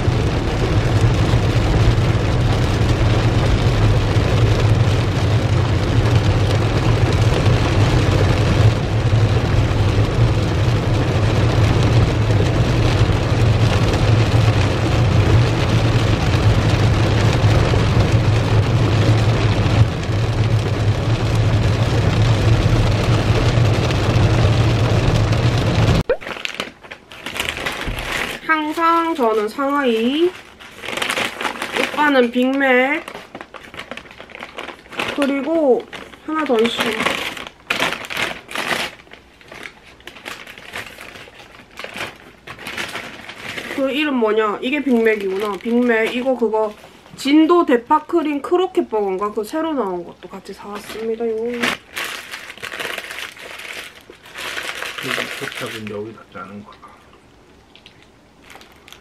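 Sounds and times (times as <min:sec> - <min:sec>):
car rumbling on wet road: 0:00.0 - 0:26.0
heavy rain on car windshield: 0:00.0 - 0:56.7, 0:57.3 - 0:59.0.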